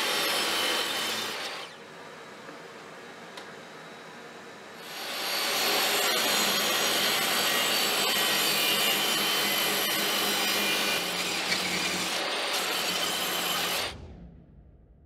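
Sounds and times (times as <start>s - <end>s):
table saw cutting wood: 0.0s - 1.8s, 4.8s - 14.0s.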